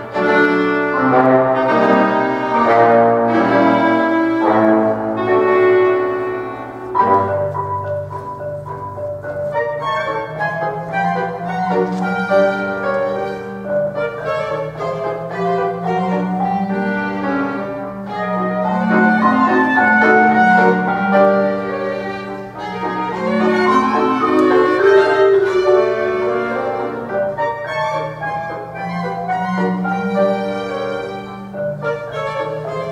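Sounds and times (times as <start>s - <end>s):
piano: 0.0s - 32.9s
violin melody: 0.0s - 32.9s
sustained low line: 23.0s - 27.3s.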